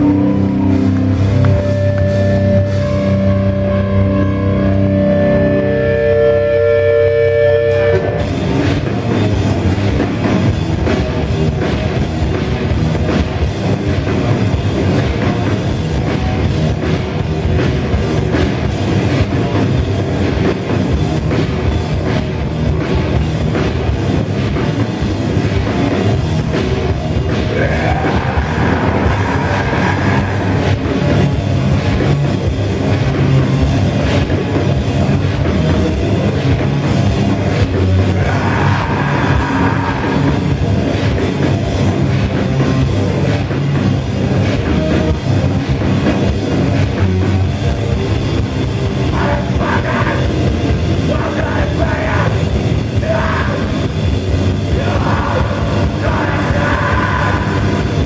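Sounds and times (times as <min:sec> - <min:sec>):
pounding drum kit: 0:00.0 - 0:06.5, 0:07.1 - 0:58.0
high sliding held note: 0:00.0 - 0:08.3
distorted electric guitars: 0:00.0 - 0:58.0
heavy rock band playing live: 0:00.0 - 0:58.0.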